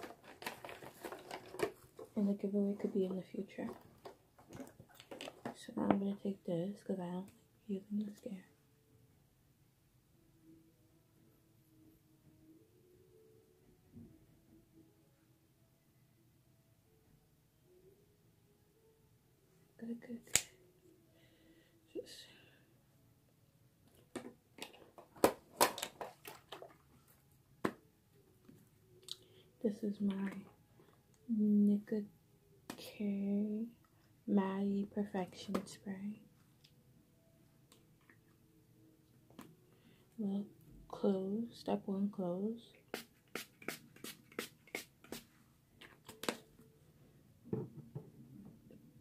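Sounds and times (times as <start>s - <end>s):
makeup containers clicking and knocking: 3.7s - 6.0s, 23.9s - 26.7s.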